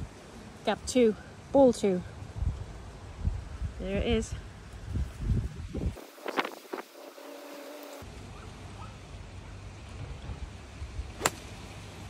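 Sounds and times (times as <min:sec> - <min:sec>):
wind noise on microphone: 0:02.2 - 0:07.6
golf club striking ball: 0:11.2 - 0:11.5.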